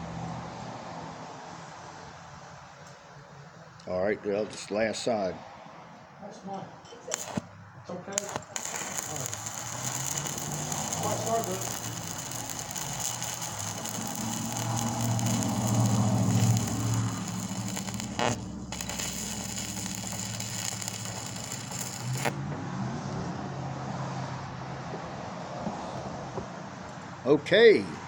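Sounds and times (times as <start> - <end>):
welding arc crackling and hissing: 7.1 - 7.5, 8.1 - 22.4.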